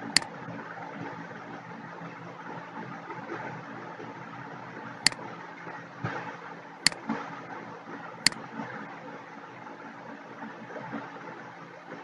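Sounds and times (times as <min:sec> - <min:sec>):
computer mouse clicks: 0:00.0 - 0:00.3.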